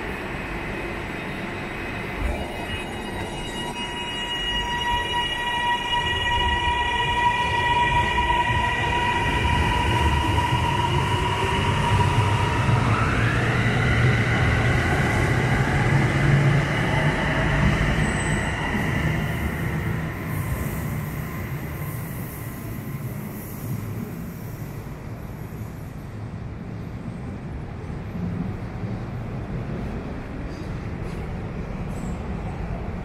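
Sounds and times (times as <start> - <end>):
electric train whine: 0.0 - 25.3.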